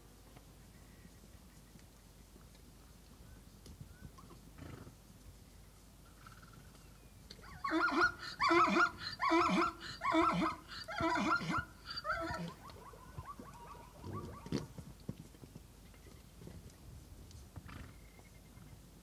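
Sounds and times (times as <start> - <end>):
zebra calling: 7.4 - 14.7.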